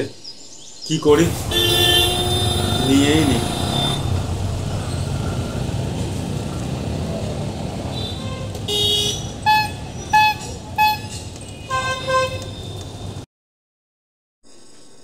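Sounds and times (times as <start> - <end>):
street traffic rumble: 1.1 - 13.3
vehicle horn toots: 1.2 - 5.2, 7.8 - 13.2.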